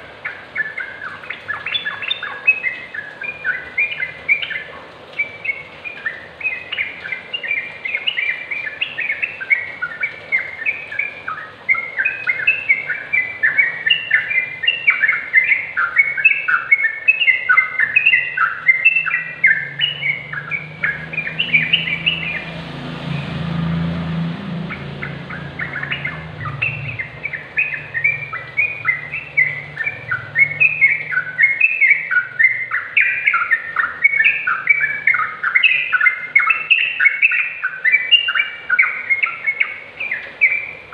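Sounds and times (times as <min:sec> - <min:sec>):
bird song chattering: 0:00.0 - 0:40.9
low background rumble: 0:17.6 - 0:34.0.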